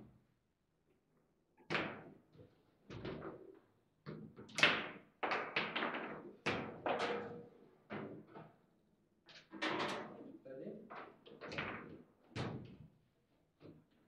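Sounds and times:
table football knocks and clacks: 0:04.1 - 0:07.4.

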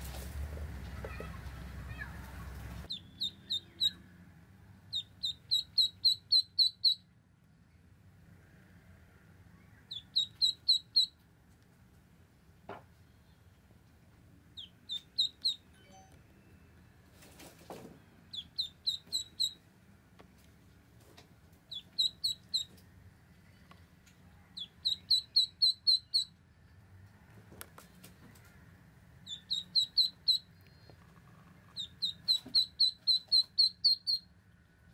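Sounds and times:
ducklings peeping: 0:00.8 - 0:04.1, 0:04.8 - 0:07.0, 0:09.8 - 0:11.2, 0:14.5 - 0:15.7, 0:18.3 - 0:19.6, 0:21.6 - 0:22.8, 0:24.5 - 0:26.4, 0:29.2 - 0:34.3.

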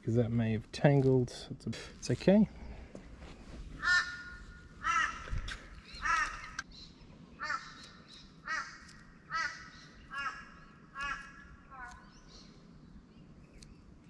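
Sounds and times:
crow cawing: 0:03.8 - 0:06.6, 0:07.4 - 0:12.0.

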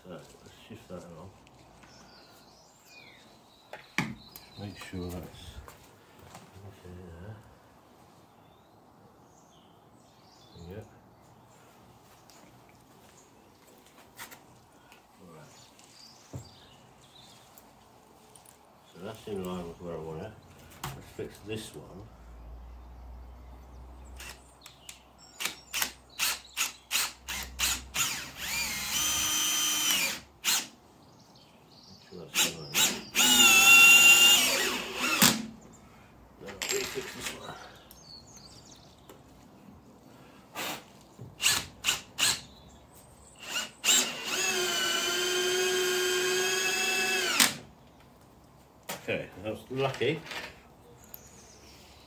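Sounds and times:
drill driving a screw: 0:24.2 - 0:24.4, 0:25.4 - 0:30.7, 0:32.4 - 0:35.5, 0:41.4 - 0:42.4, 0:43.4 - 0:47.6.

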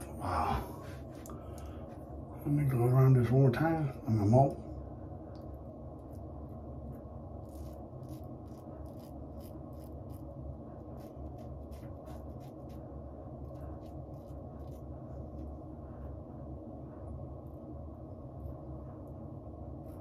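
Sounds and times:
steady low hum: 0:00.0 - 0:20.0
razor scraping stubble: 0:07.4 - 0:12.9.

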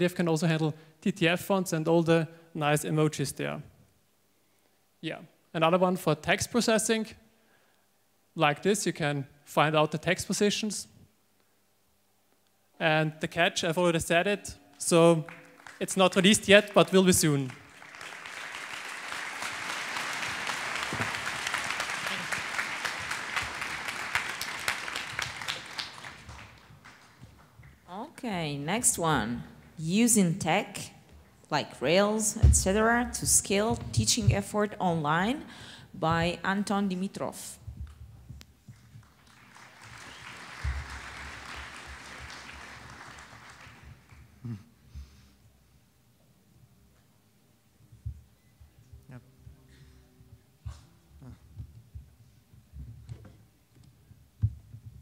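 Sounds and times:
audience applauding: 0:15.1 - 0:27.8, 0:38.7 - 0:44.4.

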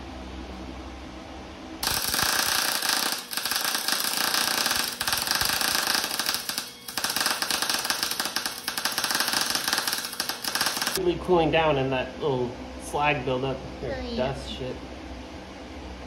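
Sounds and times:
welding arc crackling: 0:01.8 - 0:11.0.

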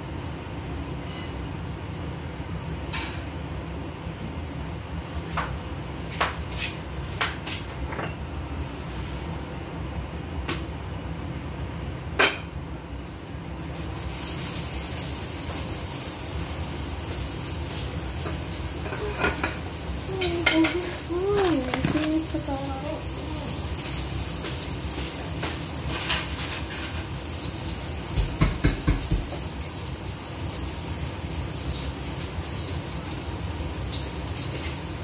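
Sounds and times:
cookware and utensils clinking: 0:12.2 - 0:12.5, 0:18.2 - 0:22.6.

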